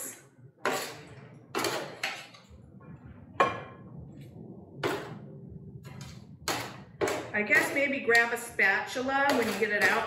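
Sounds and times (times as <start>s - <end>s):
metal utensil scraping sheet pan: 0.6s - 1.0s, 9.3s - 10.0s.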